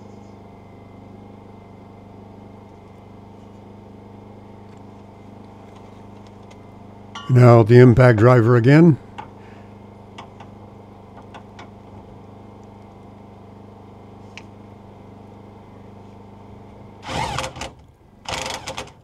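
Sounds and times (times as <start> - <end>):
impact driver burst: 17.0 - 19.0.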